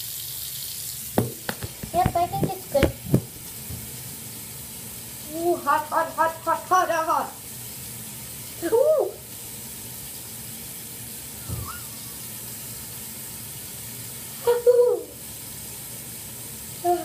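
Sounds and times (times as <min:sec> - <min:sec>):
tap water running into drain: 0:00.0 - 0:17.0
child making wordless sounds: 0:05.3 - 0:07.4, 0:08.6 - 0:09.2.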